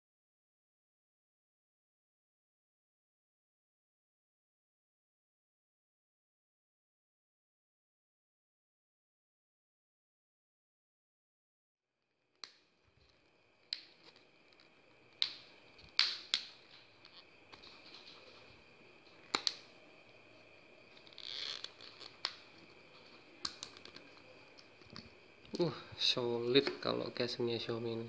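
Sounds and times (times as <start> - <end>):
faint steady hum: 12.2 - 28.0
plastic clicks and snaps: 13.7 - 18.2, 19.2 - 19.7, 21.0 - 22.7, 23.4 - 25.6.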